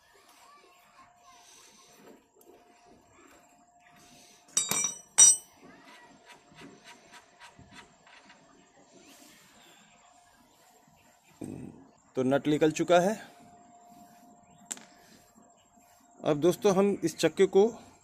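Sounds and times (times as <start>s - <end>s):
spanner clanking onto concrete: 4.5s - 5.5s.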